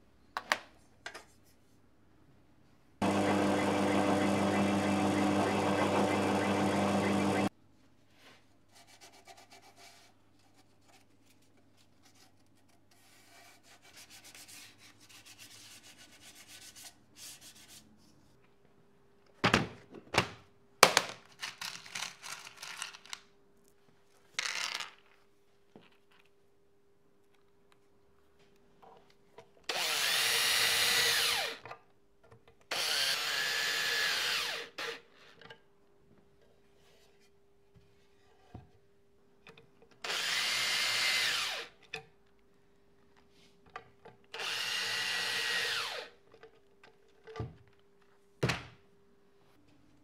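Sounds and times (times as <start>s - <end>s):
drill boring into wood: 3.0s - 7.5s, 29.7s - 31.6s, 32.7s - 35.0s, 40.0s - 41.7s, 44.4s - 46.1s.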